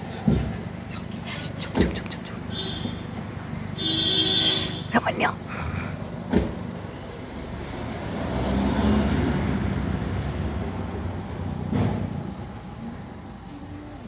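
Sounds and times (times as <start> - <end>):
car passing by: 6.3 - 12.6.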